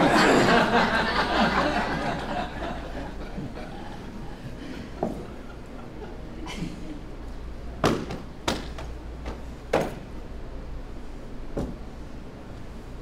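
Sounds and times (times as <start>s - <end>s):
sharp slaps of drill routine: 7.8s - 8.9s.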